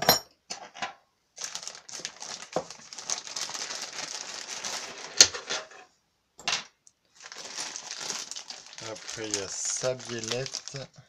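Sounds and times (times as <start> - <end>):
plastic bag rustling and crinkling: 1.4 - 5.8, 7.1 - 11.0.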